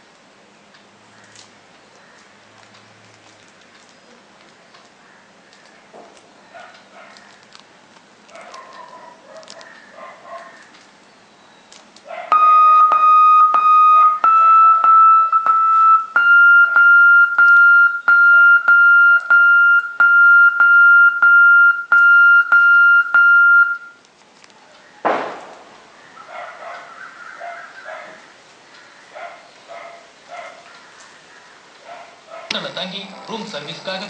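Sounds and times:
steady electronic tone with clicks: 0:12.3 - 0:24.0
thump: 0:25.1 - 0:25.8.

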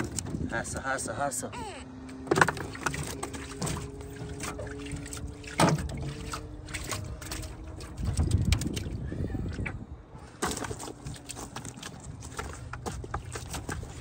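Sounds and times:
fish and mud clattering on metal: 0:00.0 - 0:00.5, 0:02.3 - 0:08.9, 0:10.4 - 0:14.0
water trickling from net: 0:02.6 - 0:09.0.

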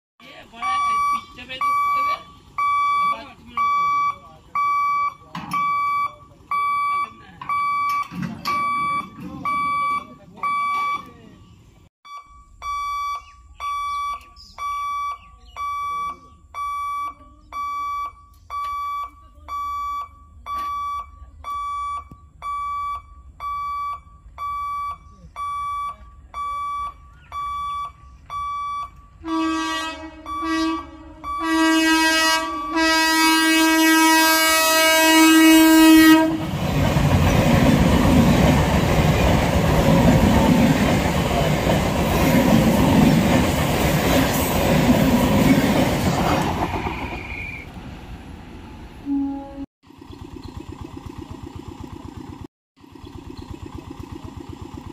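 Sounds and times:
level crossing warning beeps: 0:00.4 - 0:11.5, 0:12.1 - 0:29.4, 0:30.2 - 0:33.2
train horn blasts: 0:29.2 - 0:36.6, 0:49.0 - 0:49.7
train wheels on rails: 0:36.1 - 0:48.8.

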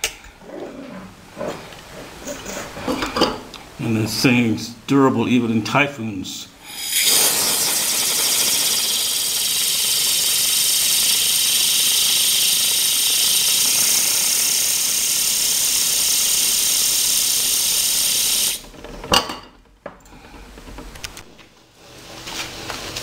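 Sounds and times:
compressed air gun hissing: 0:06.6 - 0:18.6.

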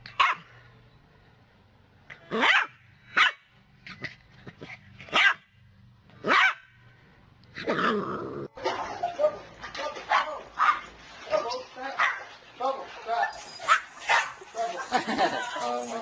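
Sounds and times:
puppy barking: 0:00.2 - 0:00.5, 0:02.3 - 0:03.4, 0:05.1 - 0:05.4, 0:06.2 - 0:06.7, 0:10.1 - 0:10.9, 0:13.2 - 0:14.4.

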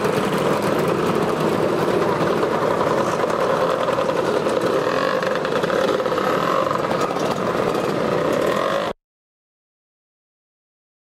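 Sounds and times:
motor scooters riding past: 0:00.0 - 0:09.0.

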